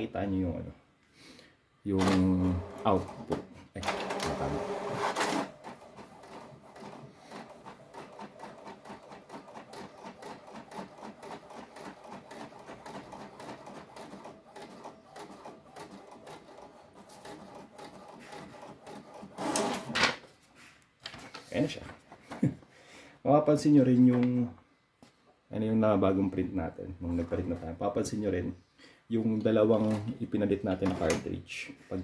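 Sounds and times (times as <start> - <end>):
inkjet printer printing: 2.0 - 20.0.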